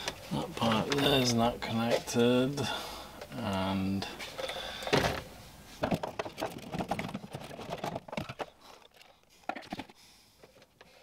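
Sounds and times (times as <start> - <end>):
plastic clicks and scrapes: 5.8 - 11.0.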